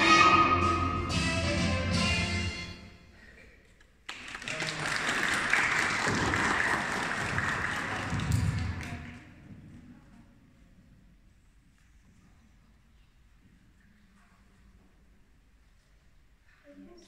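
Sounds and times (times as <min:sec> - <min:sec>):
audience applause: 0:04.1 - 0:09.2.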